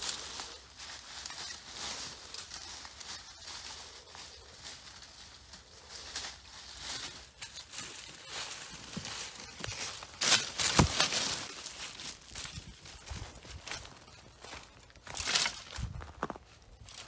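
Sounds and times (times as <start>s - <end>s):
footsteps on leaf litter: 0.0s - 17.0s
rustling leaves and brush: 0.0s - 17.0s
twigs crackling and snapping: 0.0s - 17.0s.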